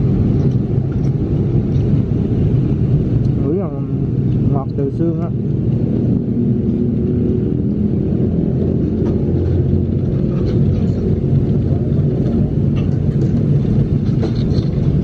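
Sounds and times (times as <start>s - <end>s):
loud low rumble: 0.0s - 15.0s.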